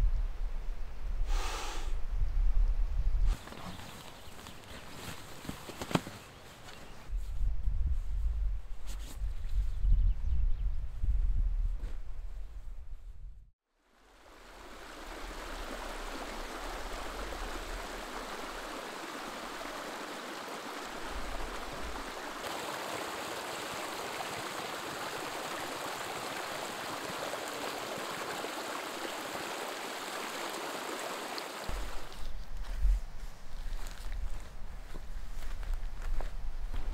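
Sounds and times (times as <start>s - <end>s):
stream rushing over rocks: 14.0s - 32.2s.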